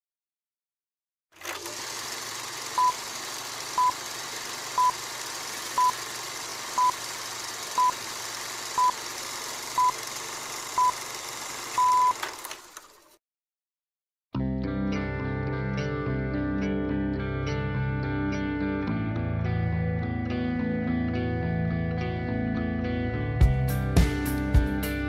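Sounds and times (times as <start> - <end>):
long final beep: 9.8 - 10.0, 11.8 - 12.2
short high beeps: 11.8 - 12.2.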